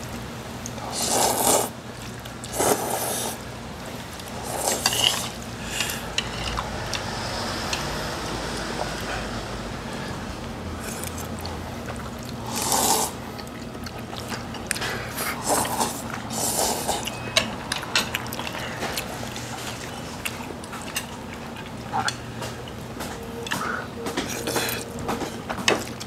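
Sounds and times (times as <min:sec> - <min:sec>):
noodles being slurped: 0:00.7 - 0:06.7, 0:10.8 - 0:17.2
wet chewing clicks: 0:10.8 - 0:26.0.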